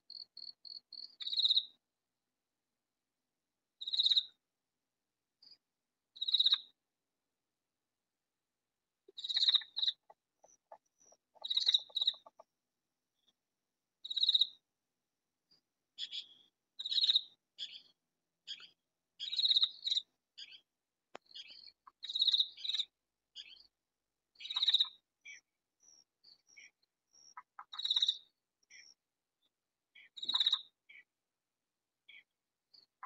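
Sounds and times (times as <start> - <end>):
katydid calling: 9.2 - 12.4.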